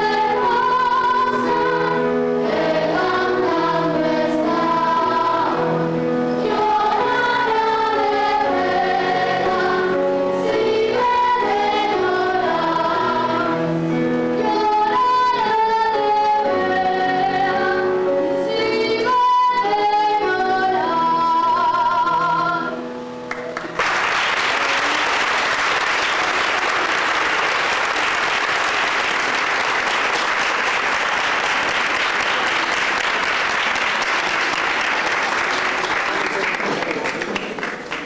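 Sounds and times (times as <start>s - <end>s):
children's choir singing: 0.0s - 22.9s
audience applause: 23.3s - 38.0s.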